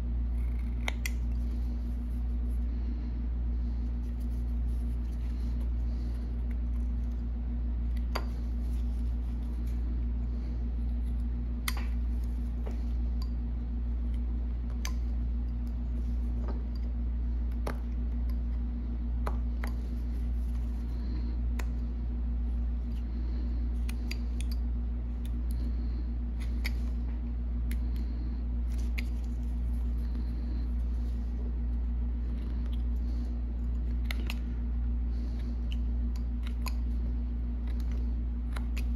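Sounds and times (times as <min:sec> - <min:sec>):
steady low hum: 0:00.0 - 0:38.9
knife carving wood: 0:00.2 - 0:02.6.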